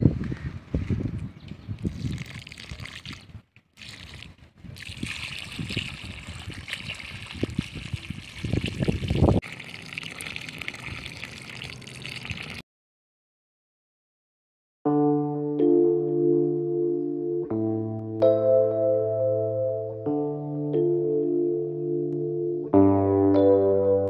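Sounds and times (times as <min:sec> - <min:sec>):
water pouring and splashing: 0:01.8 - 0:12.6.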